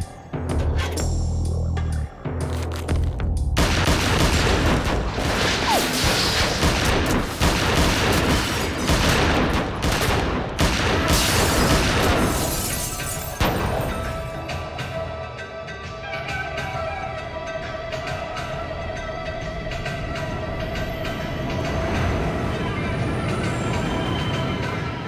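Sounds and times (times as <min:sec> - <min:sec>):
dramatic film music: 0:00.0 - 0:25.0
rapid pistol gunfire: 0:03.6 - 0:12.4.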